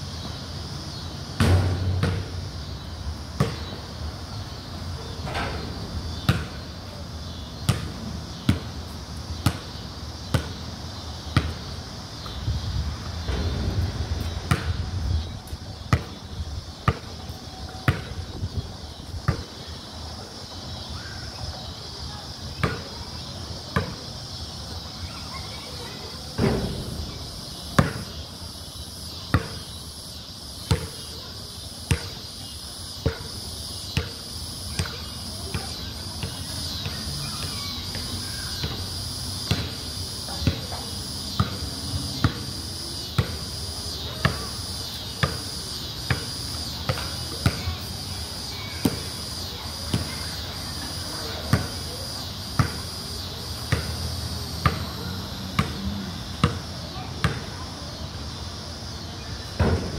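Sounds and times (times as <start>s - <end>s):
high insect buzz: 0.0s - 19.9s, 21.9s - 59.9s
basketball bouncing on concrete: 1.4s - 2.8s, 3.4s - 3.8s, 6.1s - 6.6s, 7.7s - 8.7s, 9.4s - 10.6s, 11.3s - 12.4s, 13.2s - 16.2s, 17.8s - 18.2s, 22.6s - 22.9s, 27.7s - 28.2s, 29.3s - 29.6s, 30.7s - 31.1s, 31.9s - 32.2s, 33.0s - 33.3s, 34.7s - 37.7s, 39.4s - 39.8s, 44.2s - 44.5s, 45.2s - 45.4s, 46.1s - 47.8s, 52.6s - 52.8s, 53.7s - 54.0s, 55.6s - 55.8s.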